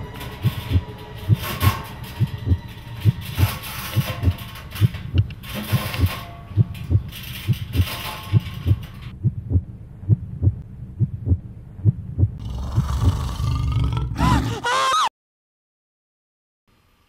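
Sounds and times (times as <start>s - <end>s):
heartbeat thumping: 0.4s - 13.2s.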